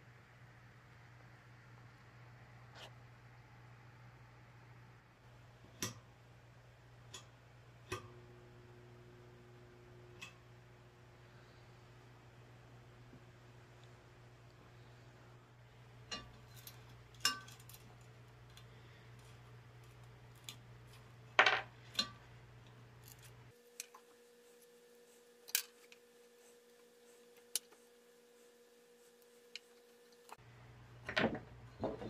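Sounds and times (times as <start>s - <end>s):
lamp wires clicking and rustling: 10.1s - 10.5s, 16.0s - 24.8s, 25.4s - 27.8s.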